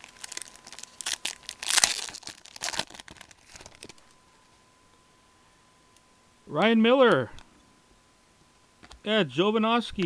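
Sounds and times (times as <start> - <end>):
foil wrapper tearing and crinkling: 0.0 - 4.1.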